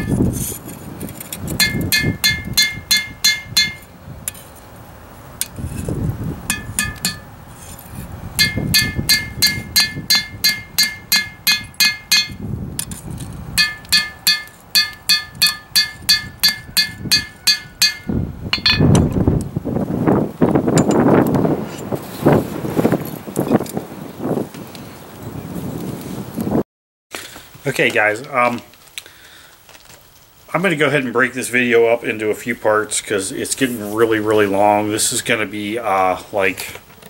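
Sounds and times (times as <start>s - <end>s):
hammer striking metal on anvil: 1.6s - 3.9s, 6.5s - 7.3s, 8.4s - 12.4s, 13.6s - 19.0s.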